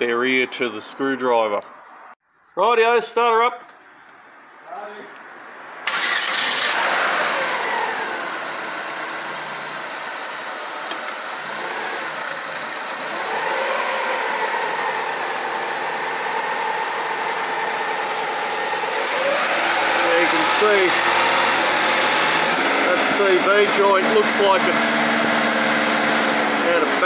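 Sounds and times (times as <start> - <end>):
car engine starting and idling: 5.8 - 27.0.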